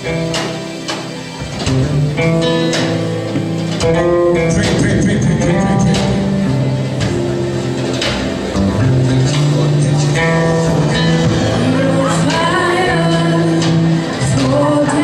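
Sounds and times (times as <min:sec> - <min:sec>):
instrumental chords and bass: 0:00.0 - 0:15.0
people singing: 0:11.2 - 0:15.0.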